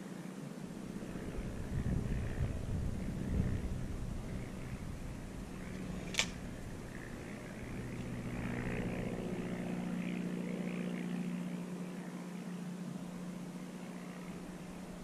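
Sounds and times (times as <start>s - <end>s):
low engine hum: 0.6s - 15.0s
sharp click: 6.1s - 6.4s.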